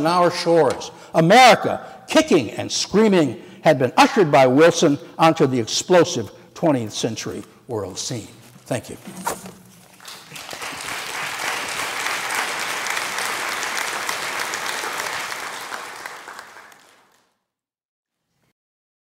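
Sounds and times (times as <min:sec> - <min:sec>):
audience applauding: 0:09.9 - 0:17.4.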